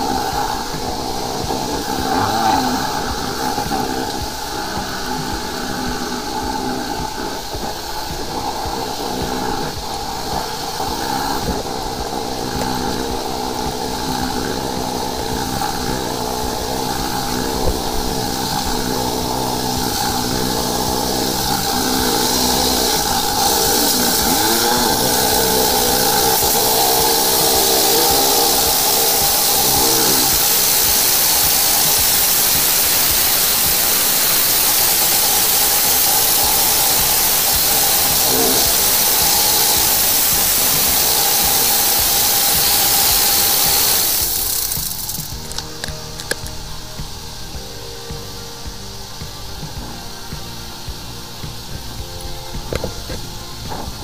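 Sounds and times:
pump engine humming: 0.0 - 54.0
water jet hissing: 0.0 - 54.0.

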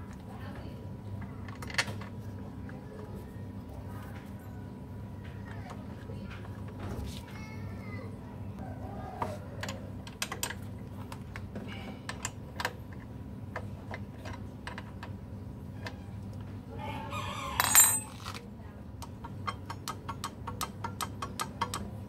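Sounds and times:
ringing metal clatter: 17.6 - 18.3
hand tools clicking on metal: 19.0 - 22.0.

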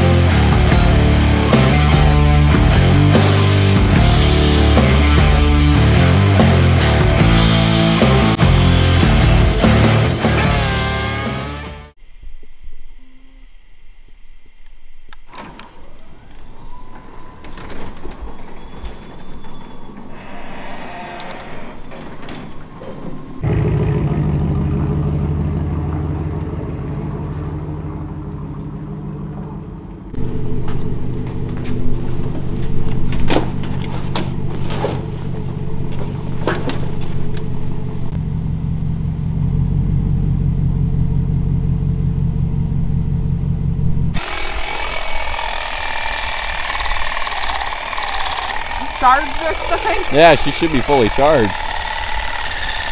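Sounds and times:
pickup truck engine running: 0.0 - 11.7, 23.4 - 52.9.

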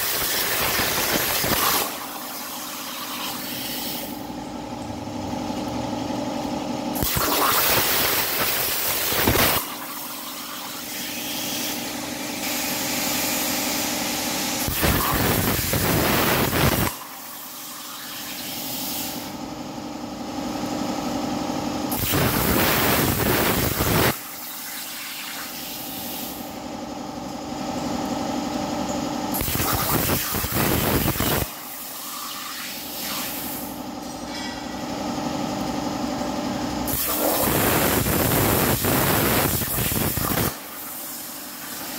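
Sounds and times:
plasma cutter hissing: 0.0 - 4.3, 7.0 - 19.3, 21.9 - 26.6, 29.3 - 34.7, 36.9 - 41.9.

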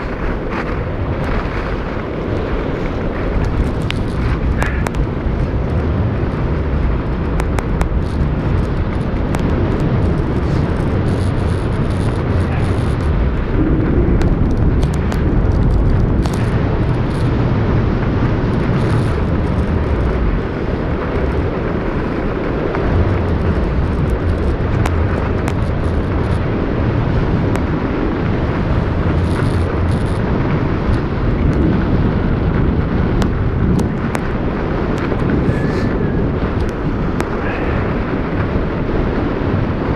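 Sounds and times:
wind buffeting microphone: 0.0 - 39.9
faint clicks: 3.4 - 5.0.

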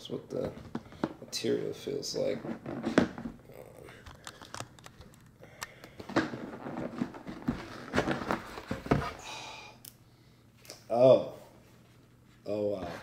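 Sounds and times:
paper rustling: 6.1 - 9.0.

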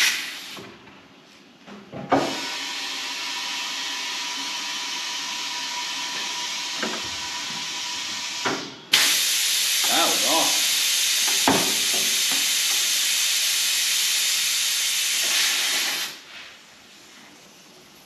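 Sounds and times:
compressed air hissing: 0.0 - 0.7, 8.9 - 17.2.

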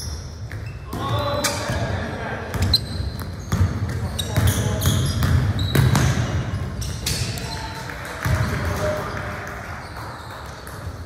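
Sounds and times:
basketball bouncing on court: 0.0 - 1.9, 2.5 - 9.0
voices in a hall: 0.7 - 11.0.

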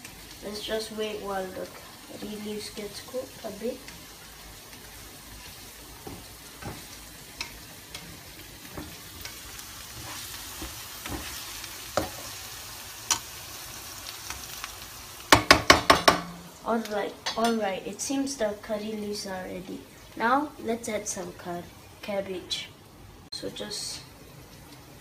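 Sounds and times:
onions sizzling in oil: 0.0 - 25.0
spatula scraping pan: 6.0 - 12.4
spatula knocking on pan: 15.3 - 16.5.

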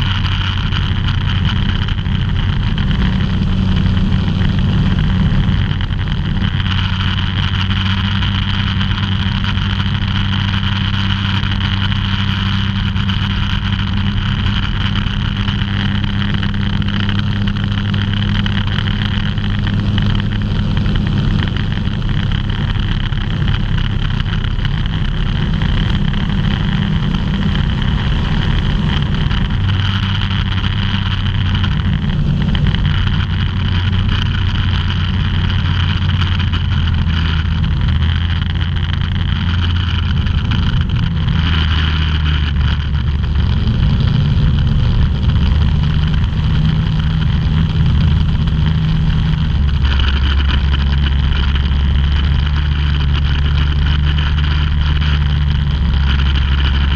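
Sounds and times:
rush of airflow: 0.0 - 56.9
ultralight aircraft engine droning: 0.0 - 56.9.

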